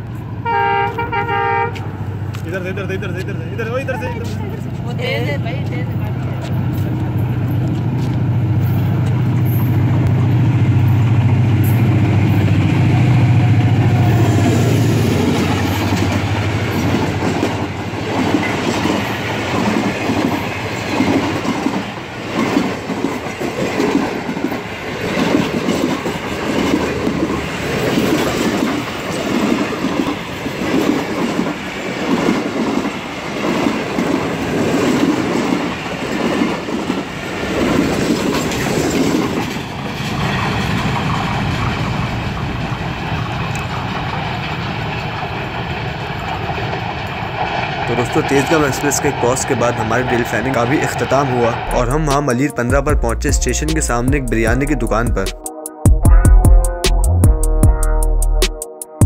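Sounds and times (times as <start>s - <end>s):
diesel locomotive engine running: 0.0s - 52.2s
train wheels clacking over rail joints: 14.8s - 51.0s.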